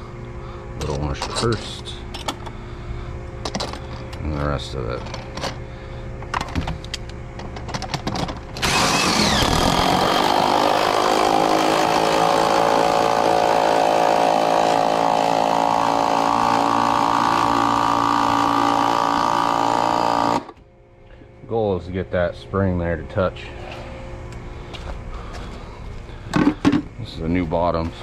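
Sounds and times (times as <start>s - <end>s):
impact driver running: 8.6s - 20.6s.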